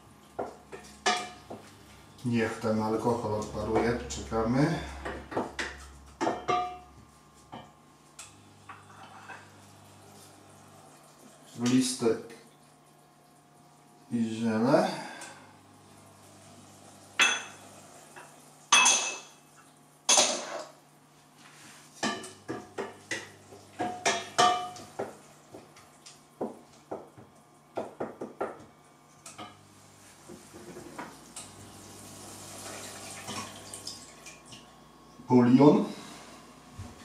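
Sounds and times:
cookware ringing clanks: 6.2s - 6.9s, 17.2s - 17.6s, 18.7s - 19.4s, 23.8s - 24.9s.

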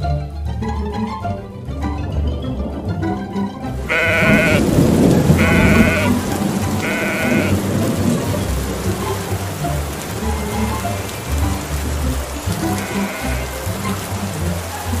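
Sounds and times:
music playing: 0.0s - 15.0s
heavy rain hissing: 2.4s - 15.0s
sheep bleating: 3.9s - 4.7s, 5.4s - 6.2s, 6.8s - 7.6s, 12.6s - 13.6s.

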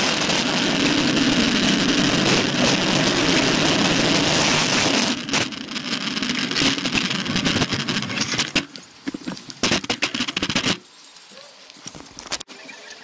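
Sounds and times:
wind rush on camera: 0.0s - 10.8s
bicycle clicking and rattling: 0.9s - 10.9s.

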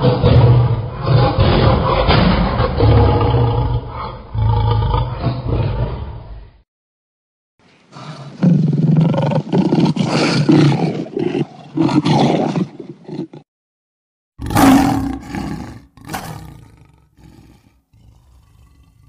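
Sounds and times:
lion grunting: 0.0s - 6.2s, 14.4s - 19.0s
lion roaring: 0.0s - 6.5s, 14.4s - 19.0s.

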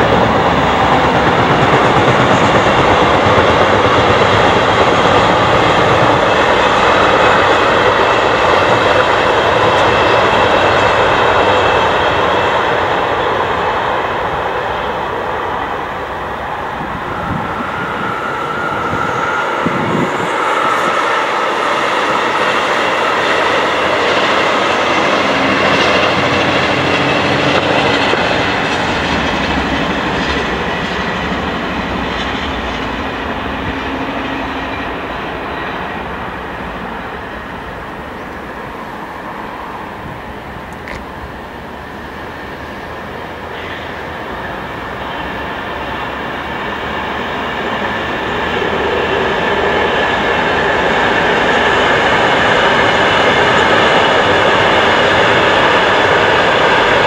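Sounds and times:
passenger train passing: 0.0s - 57.0s.

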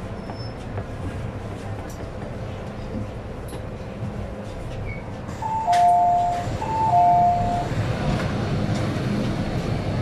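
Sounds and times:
train rumble: 0.0s - 10.0s
two-tone electronic chime: 5.5s - 7.6s.

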